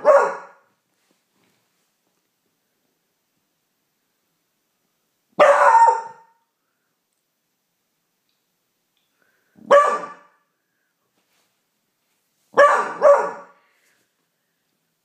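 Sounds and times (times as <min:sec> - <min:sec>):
puppy barking: 0:00.0 - 0:00.7, 0:05.4 - 0:06.4, 0:09.6 - 0:10.4, 0:12.5 - 0:13.6.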